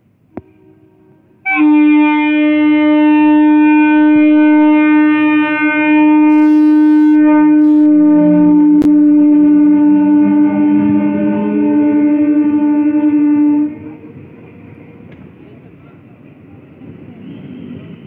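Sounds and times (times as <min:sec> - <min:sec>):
train horn long note: 0:00.3 - 0:14.3
train wheels rumbling: 0:07.2 - 0:18.0.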